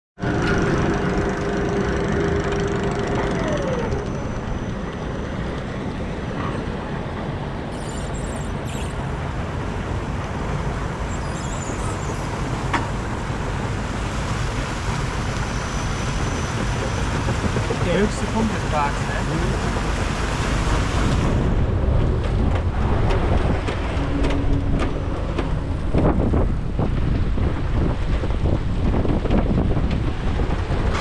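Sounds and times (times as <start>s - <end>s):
whine sliding down in pitch: 0.2s - 7.0s
chain lift mechanical rumble: 0.2s - 7.1s.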